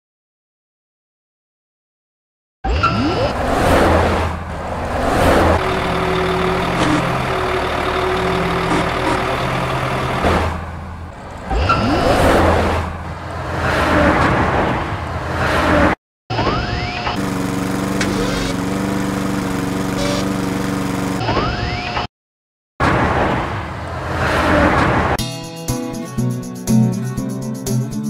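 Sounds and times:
truck engine revving: 0:02.8 - 0:14.5, 0:17.1 - 0:21.2.

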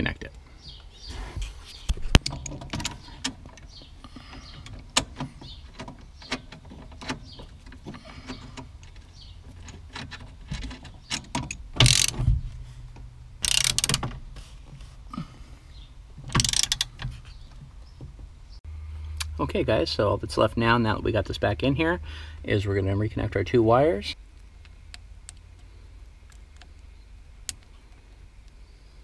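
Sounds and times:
hand tools and metal parts clicking: 0:01.8 - 0:14.2, 0:16.2 - 0:17.7.

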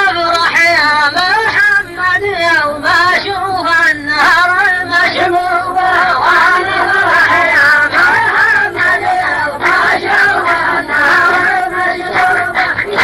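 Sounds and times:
person chanting verse: 0:04.8 - 0:13.0.

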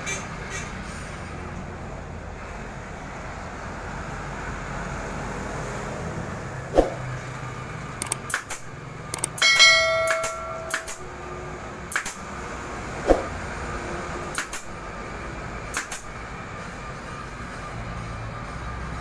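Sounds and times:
pneumatic staple gun shots: 0:08.0 - 0:09.4, 0:10.2 - 0:11.1, 0:11.9 - 0:12.3, 0:14.3 - 0:14.8, 0:15.7 - 0:16.1
metallic ring: 0:09.3 - 0:11.3.

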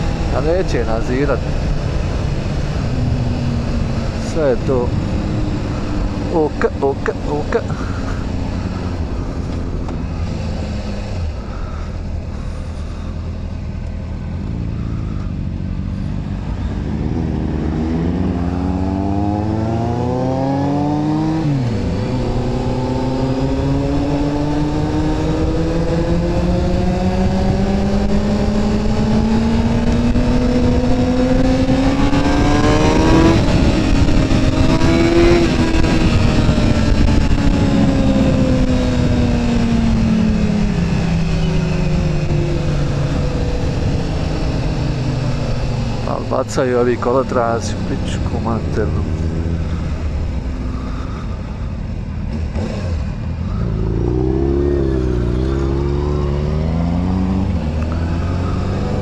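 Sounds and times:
motorcycle engine revving: 0:00.0 - 0:59.0
wind noise: 0:16.9 - 0:46.0.

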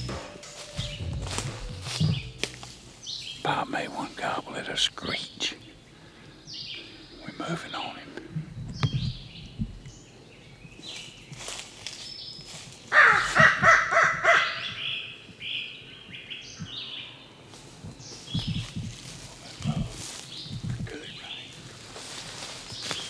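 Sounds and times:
footsteps in dry leaves: 0:00.0 - 0:03.4, 0:10.8 - 0:13.4, 0:17.6 - 0:23.0
songbirds chirping: 0:00.0 - 0:23.0
harsh crow call caws: 0:12.9 - 0:15.0.

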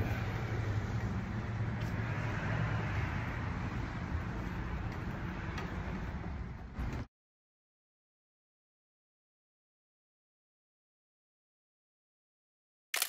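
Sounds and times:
traffic rumble: 0:00.0 - 0:07.1.

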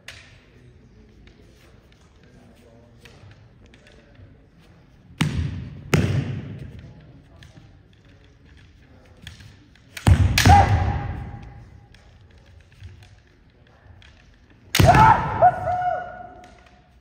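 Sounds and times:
bamboo swords striking: 0:09.9 - 0:11.8, 0:14.7 - 0:16.8
person shouting: 0:10.4 - 0:11.0, 0:14.8 - 0:16.4.

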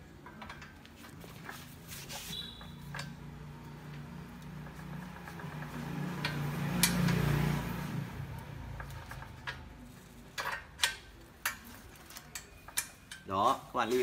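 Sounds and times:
metal clicks and knocks: 0:00.0 - 0:01.2, 0:08.7 - 0:13.4.

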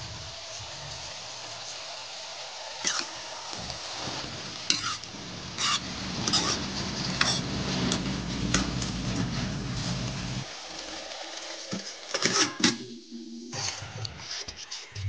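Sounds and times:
food sizzling: 0:00.0 - 0:15.0
ladle scraping metal pan: 0:04.7 - 0:10.0.

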